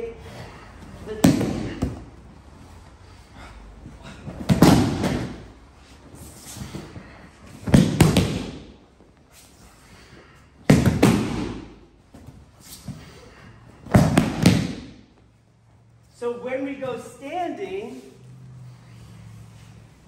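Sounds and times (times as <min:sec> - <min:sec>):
bodies thudding on mats: 0:04.2 - 0:05.5, 0:13.8 - 0:15.0.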